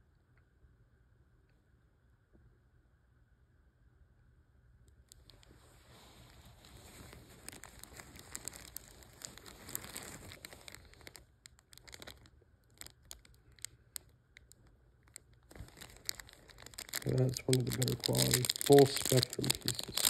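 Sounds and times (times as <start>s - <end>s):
plastic bag crinkling: 5.1s - 20.0s
paper towel rustling: 5.3s - 11.2s, 15.5s - 20.0s.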